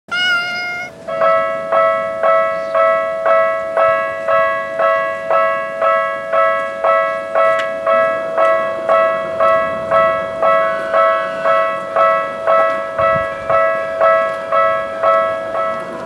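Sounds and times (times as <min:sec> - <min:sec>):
cat meowing: 0:00.1 - 0:01.0.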